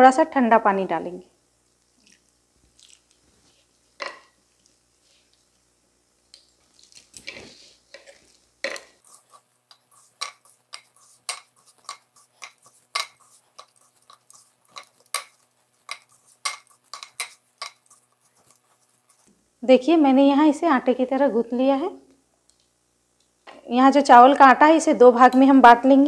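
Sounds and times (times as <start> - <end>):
dough squishing in metal bowl: 6.3 - 19.3
dough clicking and knocking: 7.0 - 19.3.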